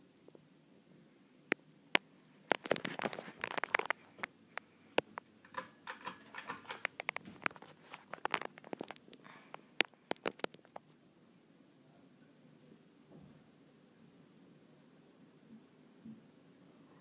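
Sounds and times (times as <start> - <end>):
ceiling fan hum: 0.0 - 17.0
handling noise clicks and taps: 5.0 - 9.2.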